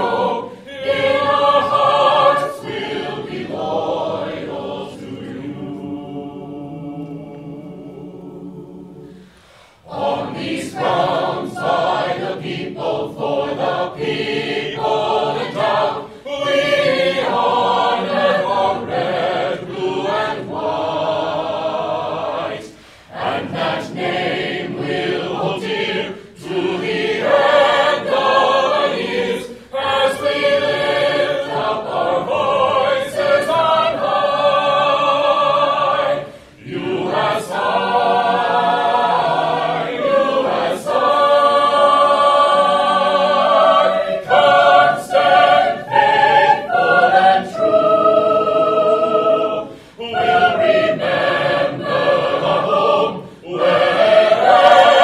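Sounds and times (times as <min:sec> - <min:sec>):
choir singing: 0:00.0 - 0:55.0
singers breathing: 0:09.0 - 0:09.9, 0:22.7 - 0:23.2, 0:36.2 - 0:36.6, 0:49.7 - 0:50.0, 0:53.2 - 0:53.5.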